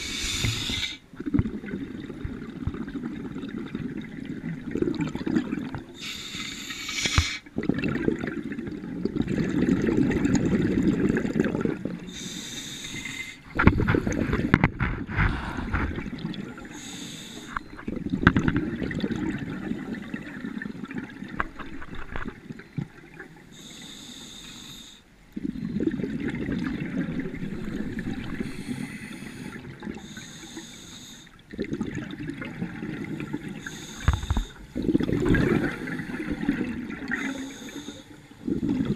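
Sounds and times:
hissing regulator inhale: 0.0 - 1.0, 6.0 - 7.5, 12.1 - 14.4, 16.7 - 17.7, 23.5 - 25.1, 28.3 - 31.4, 33.6 - 34.7, 37.1 - 38.3
bubbling exhaled air: 0.0 - 21.4, 25.4 - 38.9.

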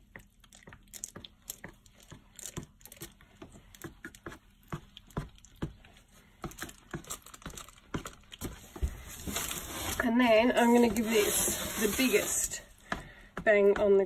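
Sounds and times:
spatula clicking and tapping: 0.0 - 8.6, 12.8 - 14.0.

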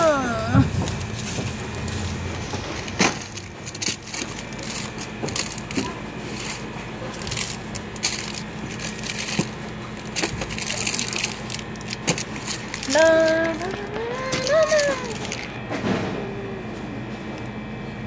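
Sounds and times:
items handled on wire cart: 0.0 - 16.0
steady low hum: 0.0 - 18.0.

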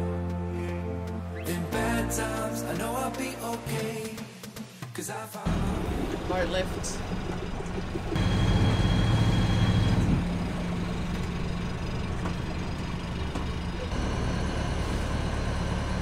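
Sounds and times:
boat engine running: 5.5 - 16.0.

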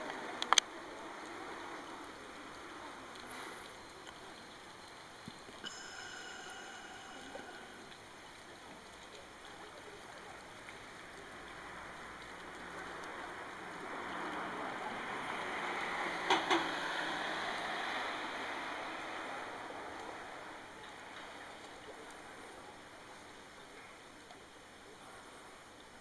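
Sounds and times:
water rushing over weir: 0.0 - 19.5.

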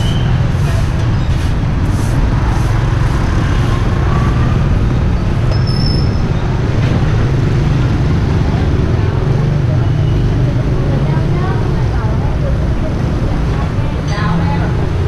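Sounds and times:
scooters passing by: 0.0 - 15.0.

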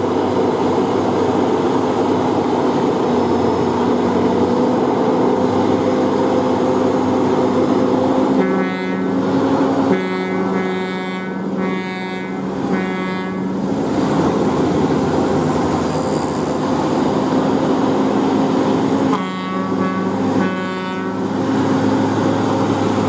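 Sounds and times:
truck diesel engine under load: 0.0 - 23.0
multi-tone horn blasts: 8.4 - 9.2, 9.9 - 13.6, 19.1 - 21.3.

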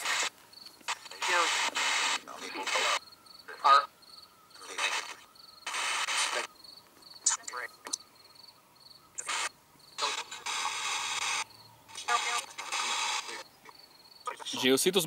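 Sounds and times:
bursts of radio static: 0.0 - 6.6, 7.2 - 8.0, 9.2 - 14.8
chopped voice fragments: 0.9 - 3.8, 4.6 - 6.5, 7.2 - 8.0, 9.2 - 13.4, 14.3 - 14.8.

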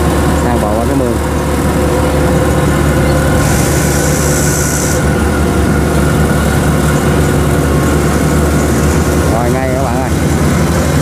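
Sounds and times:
combine harvester diesel engine: 0.0 - 11.0
hiss: 3.4 - 5.1.

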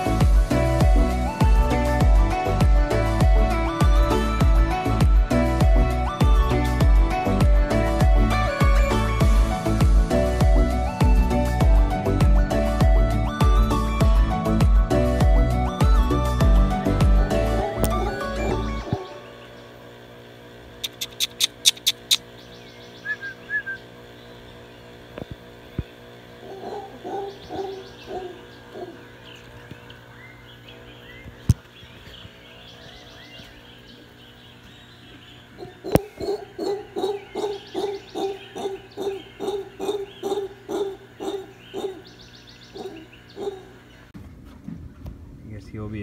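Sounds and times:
howler monkey hooting: 17.3 - 19.6, 26.4 - 29.4, 35.3 - 44.1
sharp high clicks: 20.8 - 22.3.

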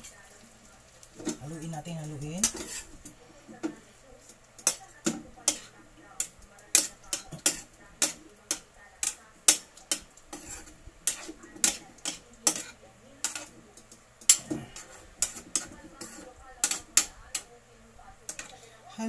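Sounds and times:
metal spoon clinking in frying pan: 2.4 - 2.8, 4.6 - 17.5.

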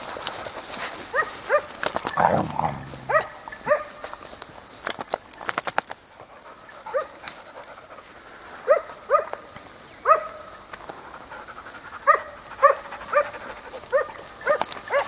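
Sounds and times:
dog yelping: 1.2 - 3.9.

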